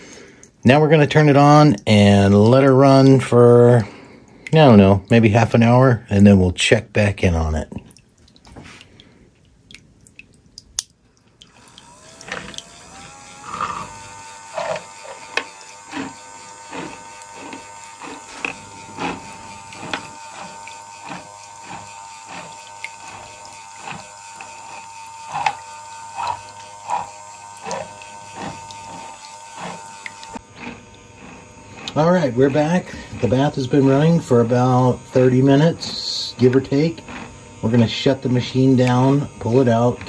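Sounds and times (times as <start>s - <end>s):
gear clicking: 11.4s - 40.0s
electric motor whine: 11.5s - 40.0s.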